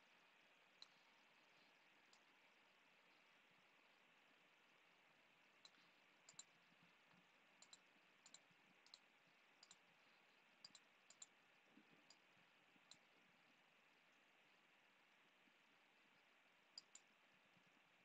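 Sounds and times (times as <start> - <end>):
faint sharp clicks: 5.6 - 6.5, 7.1 - 9.8, 10.6 - 11.3, 16.8 - 17.1.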